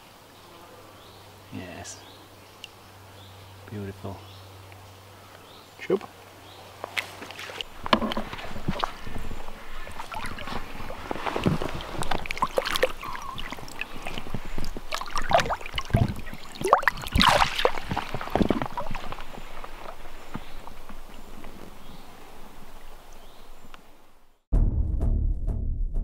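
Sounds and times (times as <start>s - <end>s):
river water splashing: 6.2s - 23.7s.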